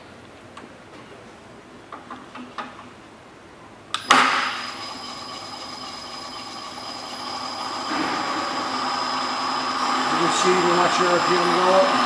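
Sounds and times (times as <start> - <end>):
mill spindle whining: 4.0 - 12.0.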